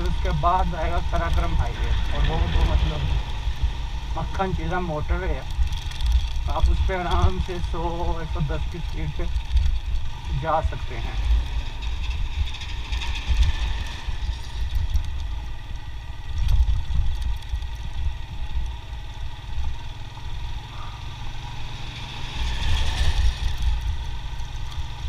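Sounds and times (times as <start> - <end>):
motorcycle engine running: 0.0 - 25.0
wind and road noise rumble: 0.0 - 25.0.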